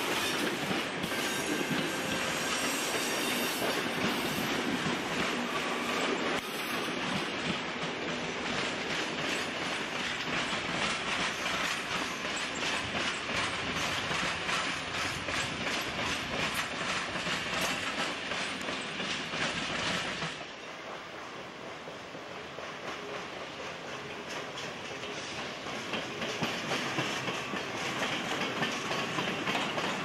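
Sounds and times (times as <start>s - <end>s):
train wheels clattering over rails: 0.0s - 30.0s.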